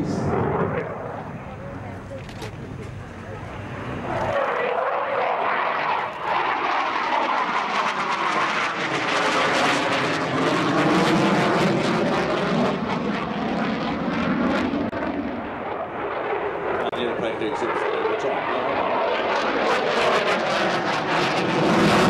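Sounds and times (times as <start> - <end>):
jet engine roar: 0.0 - 22.0.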